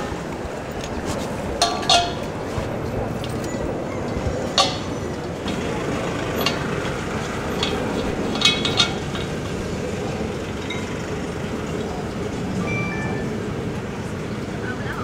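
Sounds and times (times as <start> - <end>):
steady background noise: 0.0 - 15.0
metallic clicks and clinks: 1.6 - 2.4, 3.2 - 11.2.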